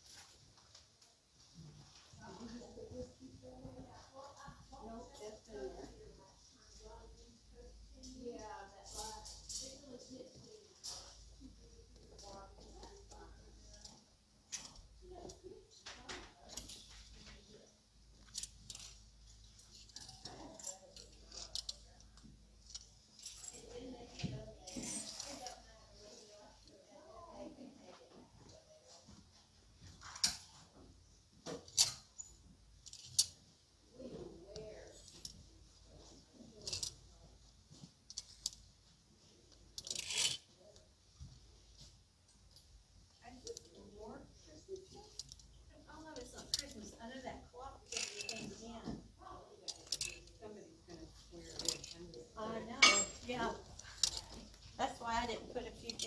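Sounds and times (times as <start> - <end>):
hangers clicking together: 16.1 - 17.3, 18.2 - 23.8, 24.7 - 25.6, 29.8 - 30.6, 31.5 - 33.4, 34.8 - 35.4, 36.6 - 37.0, 38.0 - 38.7, 39.6 - 40.5, 44.8 - 47.2, 47.8 - 48.7, 49.6 - 50.4, 51.0 - 56.0
plastic hangers scraping along rack: 39.8 - 40.5, 47.9 - 48.8, 49.7 - 50.4, 51.3 - 56.0
plastic hangers sliding on metal rail: 39.8 - 40.5, 47.9 - 48.6, 49.7 - 50.3.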